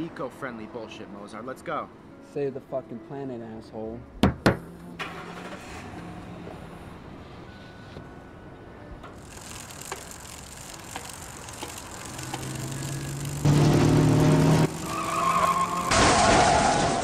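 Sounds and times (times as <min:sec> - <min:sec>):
car running with road noise: 0:04.5 - 0:17.0.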